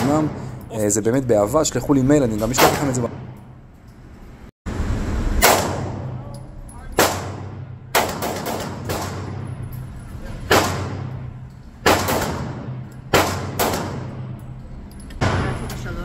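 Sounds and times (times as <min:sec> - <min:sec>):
steady low hum: 0:00.0 - 0:16.0
pistol shots indoors: 0:05.4 - 0:06.4, 0:07.0 - 0:09.6, 0:10.5 - 0:14.5.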